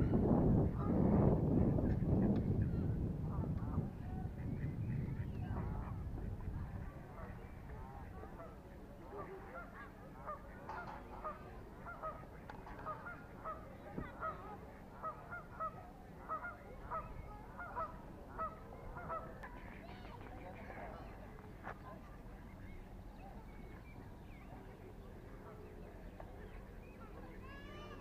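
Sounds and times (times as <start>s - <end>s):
geese honking: 8.4s - 19.4s.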